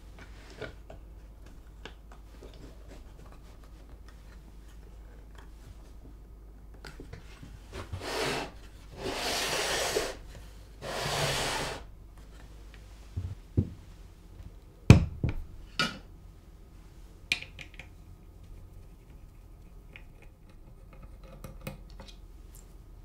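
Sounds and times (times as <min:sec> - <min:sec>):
wood sliding and rubbing on wood: 0:07.2 - 0:13.2
wooden knocks and clunks: 0:13.2 - 0:13.8.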